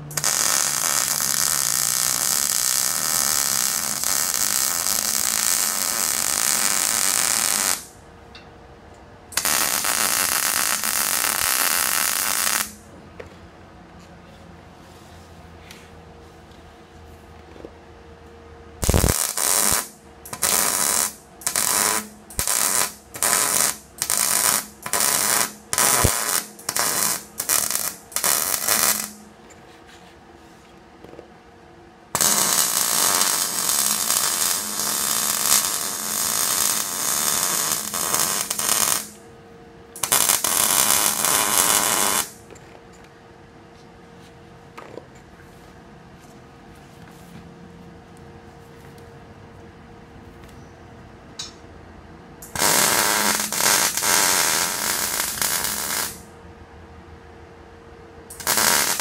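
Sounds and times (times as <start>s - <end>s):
welder arc crackling on steel: 0.0s - 8.0s, 9.3s - 12.9s, 18.8s - 29.3s, 32.2s - 39.2s, 40.0s - 42.4s, 52.4s - 56.3s, 58.3s - 59.0s
faint steady hum: 0.0s - 59.0s.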